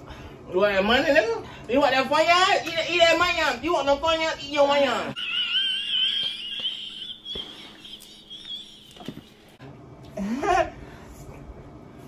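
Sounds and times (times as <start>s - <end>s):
woman squealing laugh: 5.2s - 9.4s.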